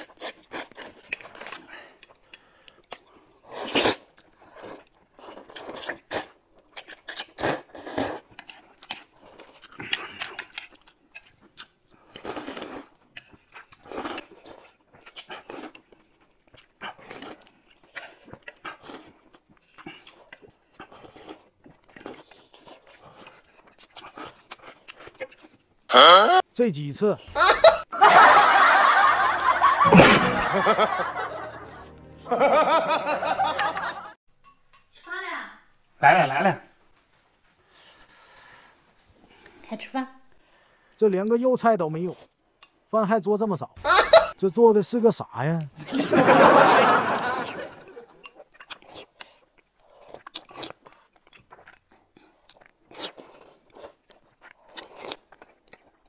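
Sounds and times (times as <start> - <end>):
chewing: 0.0 - 25.9, 47.1 - 56.0
noodles being slurped: 3.0 - 25.5
bursts of laughter: 27.3 - 34.2, 45.8 - 48.1
sharp hit: 29.8 - 32.6
background music: 29.8 - 34.1.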